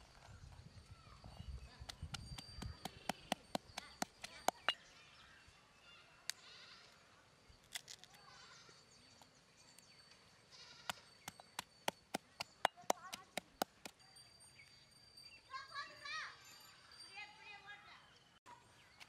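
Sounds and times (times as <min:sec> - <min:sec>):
stone pestle knocking in mortar: 0:01.9 - 0:04.8, 0:11.2 - 0:14.0.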